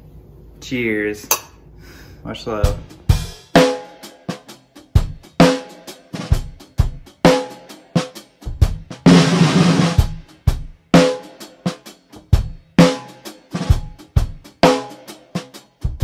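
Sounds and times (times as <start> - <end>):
snare and bass drum beat: 2.5 - 16.0.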